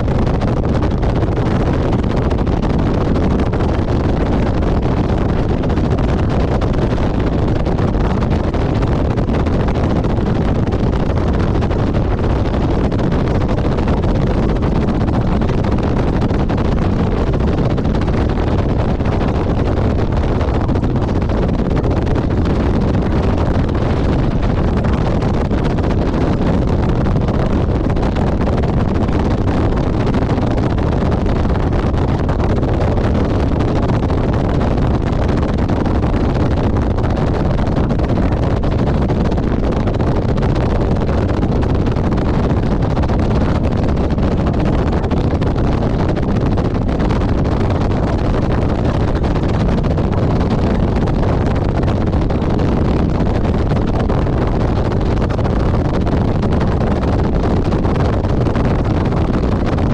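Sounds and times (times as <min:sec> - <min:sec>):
motorcycle engine drone: 0:00.0 - 0:39.1
wind rush on microphone: 0:00.0 - 0:59.9.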